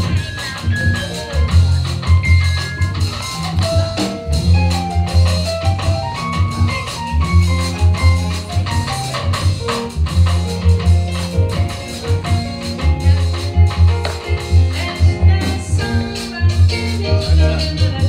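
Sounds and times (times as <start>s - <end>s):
drum kit steady beat: 0.0s - 18.0s
upright double bass playing: 0.0s - 18.0s.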